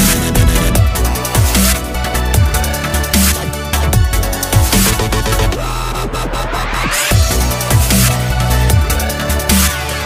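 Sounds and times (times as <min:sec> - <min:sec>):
electronic dance music: 0:00.0 - 0:03.5.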